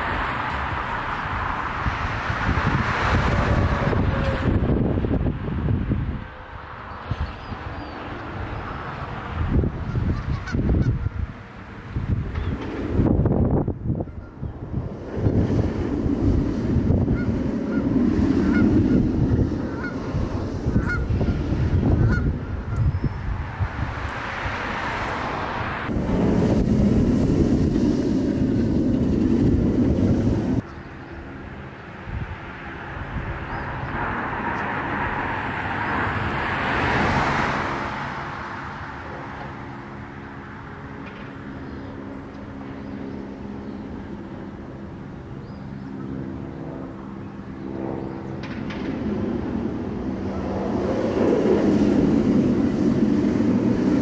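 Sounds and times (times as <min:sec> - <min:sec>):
wind on microphone: 0:00.0 - 0:40.2, 0:40.8 - 0:54.0
roller coaster train roaring: 0:00.0 - 0:41.6, 0:46.1 - 0:54.0
steady low hum: 0:25.8 - 0:33.9.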